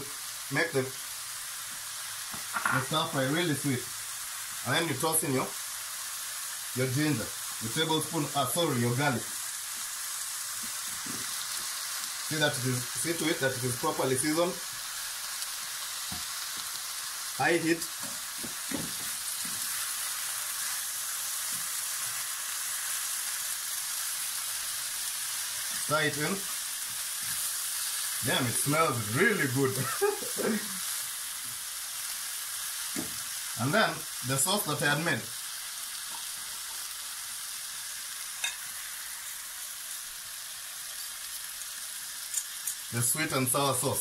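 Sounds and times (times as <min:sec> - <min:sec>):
vegetables sizzling in a frying pan: 0:00.0 - 0:44.0
spatula scraping a pan: 0:18.0 - 0:20.8.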